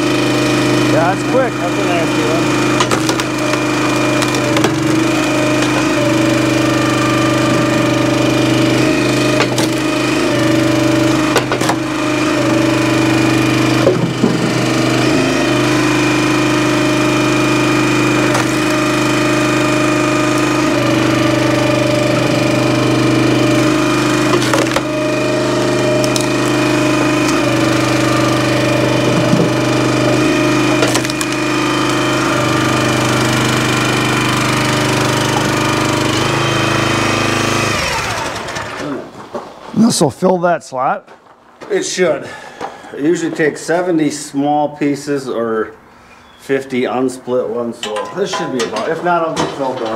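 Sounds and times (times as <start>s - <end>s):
small gas engine running: 0.0s - 39.2s
firewood cracking and knocking: 2.6s - 6.8s, 9.0s - 9.9s, 10.7s - 12.0s, 13.4s - 15.0s, 18.1s - 19.1s, 23.4s - 32.2s.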